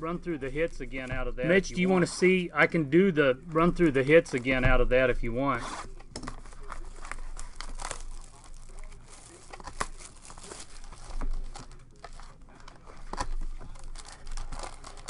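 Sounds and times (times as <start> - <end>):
shrink wrap crinkling: 3.6 - 15.0
foil packs rustling and crackling: 5.7 - 15.0.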